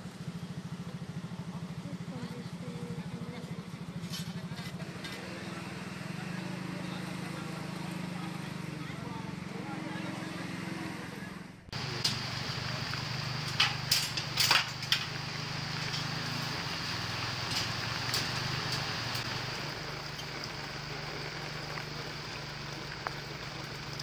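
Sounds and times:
low machine hum: 0:11.5 - 0:24.0.

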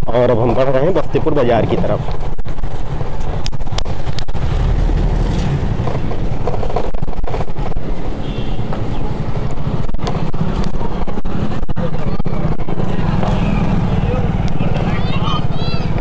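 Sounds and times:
street traffic rumble: 0:00.0 - 0:16.0
car passing on brick paving: 0:01.2 - 0:16.0.

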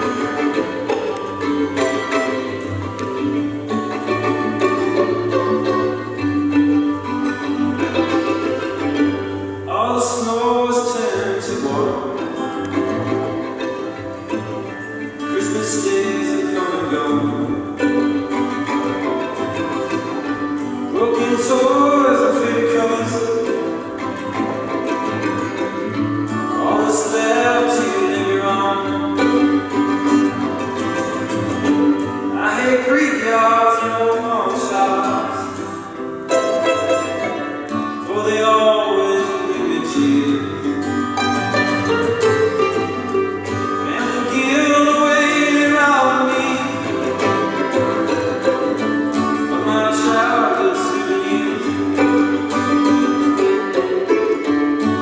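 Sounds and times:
acoustic guitar strumming: 0:00.0 - 0:55.0
plucked violin: 0:00.0 - 0:55.0
man singing: 0:09.6 - 0:13.1, 0:15.1 - 0:18.6, 0:20.8 - 0:24.2, 0:26.4 - 0:30.2, 0:32.2 - 0:35.9, 0:37.1 - 0:41.1, 0:42.4 - 0:53.9.

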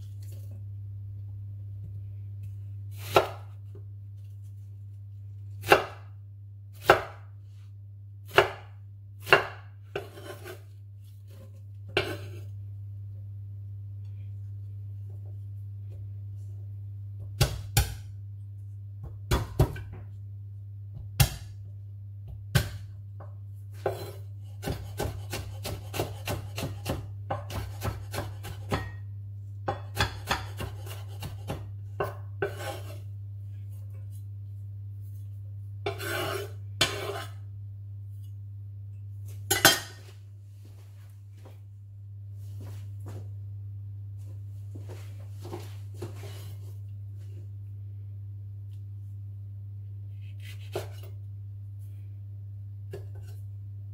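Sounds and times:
knife chopping on wooden board: 0:08.3 - 0:10.6, 0:23.8 - 0:29.0, 0:29.7 - 0:33.0.

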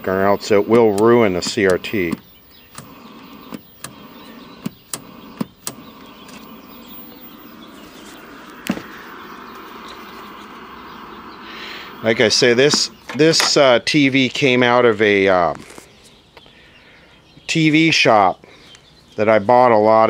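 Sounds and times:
steady hiss: 0:00.0 - 0:14.1.

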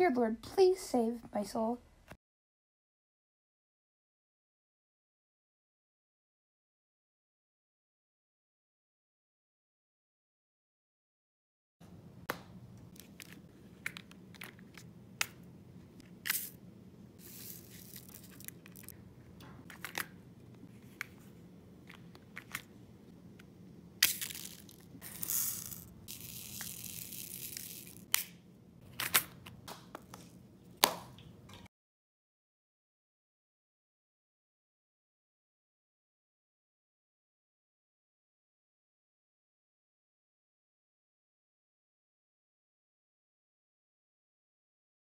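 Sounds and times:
plastic packets rustling: 0:17.2 - 0:18.9, 0:24.0 - 0:28.1.

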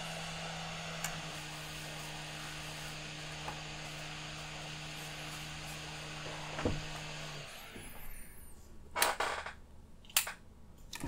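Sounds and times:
hot-air blower hissing: 0:00.0 - 0:08.5.

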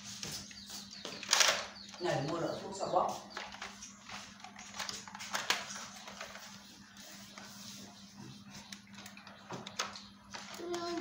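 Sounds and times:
plastic clicks and scrapes: 0:08.6 - 0:11.0.

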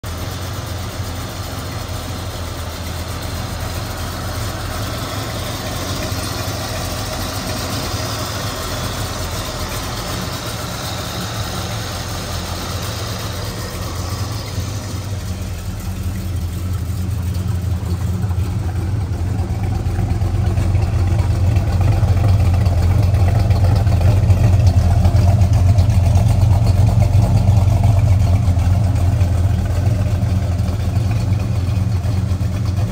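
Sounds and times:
car engine idling: 0:00.0 - 0:32.9.

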